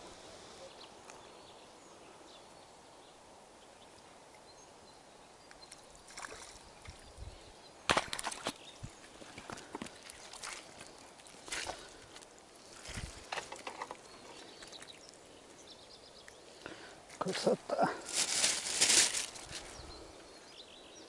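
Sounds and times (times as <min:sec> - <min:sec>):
lakeside ambience: 0:00.0 - 0:21.0
fishing tackle clicks and rustles: 0:09.2 - 0:15.2, 0:18.0 - 0:19.7.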